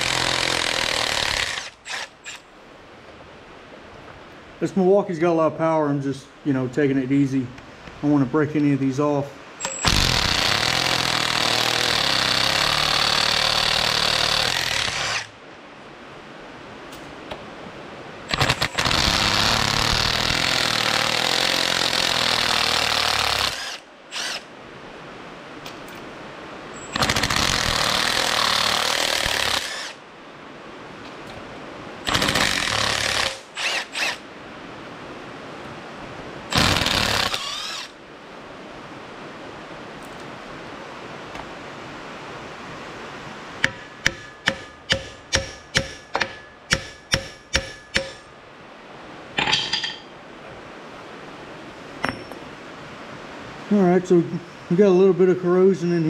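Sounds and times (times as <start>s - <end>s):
impact wrench hammering: 43.6s - 48.3s, 49.4s - 50.1s, 52.0s - 52.4s.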